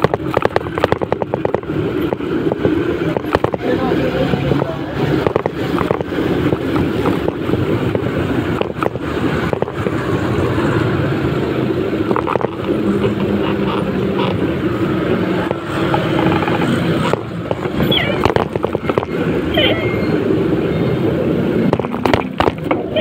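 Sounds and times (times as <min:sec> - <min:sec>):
road noise: 0:00.0 - 0:23.0
wind rushing over microphone: 0:00.0 - 0:23.0.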